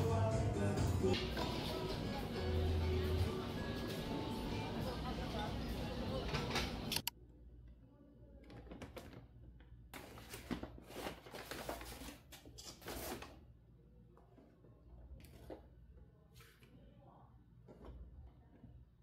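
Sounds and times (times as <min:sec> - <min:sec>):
music: 0:00.0 - 0:07.0
voices: 0:01.6 - 0:07.1
shopping bag rustling: 0:10.0 - 0:13.4.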